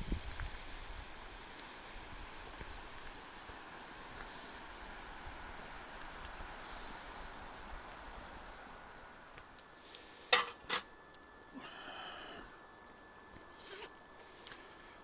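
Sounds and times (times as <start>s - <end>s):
metal camp dishes clinking: 10.3s - 10.9s.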